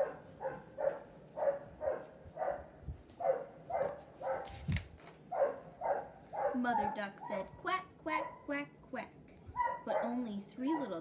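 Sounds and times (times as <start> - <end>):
book page turning: 4.4 - 5.2
animal calling: 9.6 - 11.0.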